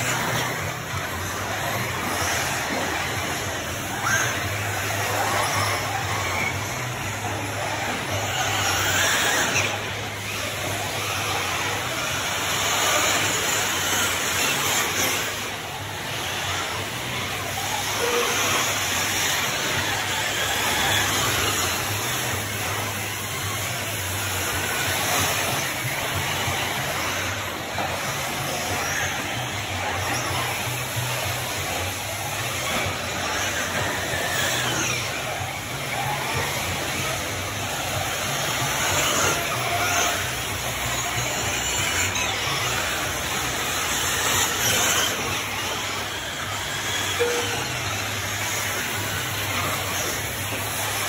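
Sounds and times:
rc truck motor whine: 0.0s - 51.0s.

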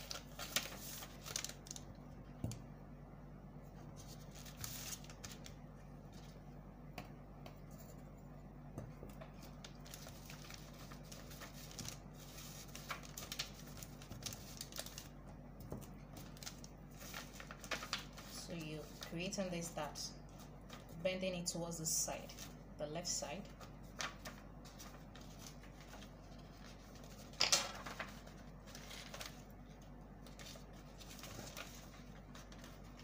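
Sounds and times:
paper rustling and sliding: 0.0s - 1.8s, 4.0s - 6.4s, 16.2s - 19.0s, 23.9s - 33.0s
faint low hum: 0.0s - 33.0s.

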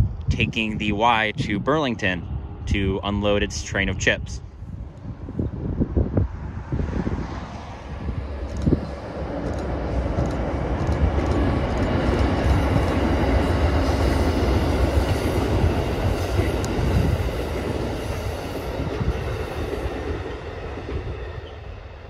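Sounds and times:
train wheels rumbling over bridge: 0.0s - 22.0s
diesel locomotive engine running: 7.5s - 22.0s.

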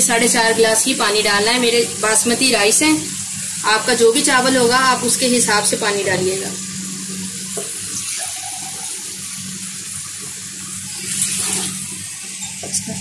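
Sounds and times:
liquid pouring and splashing: 7.1s - 12.8s.

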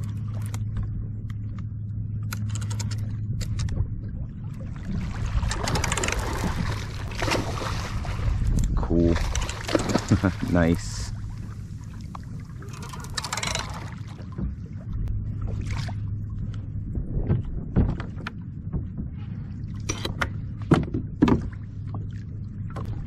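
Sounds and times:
steady low hum: 0.0s - 23.0s
water against kayak hull: 0.0s - 23.0s.

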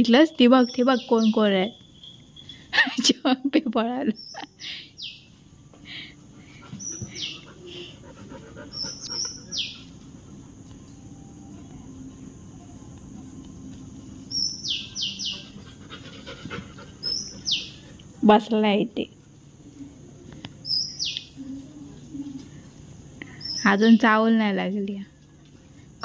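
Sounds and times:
insects droning: 0.0s - 26.0s
bird calling with falling notes: 14.3s - 15.6s.

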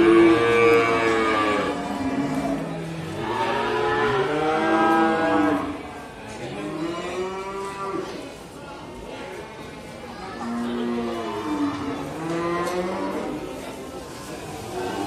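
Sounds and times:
cattle mooing: 0.0s - 5.8s.

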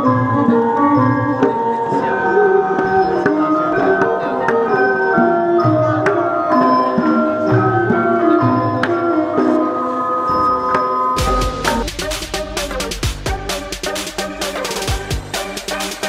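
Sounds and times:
tuned percussion melody: 0.0s - 16.0s
low drum strokes: 11.2s - 16.0s.

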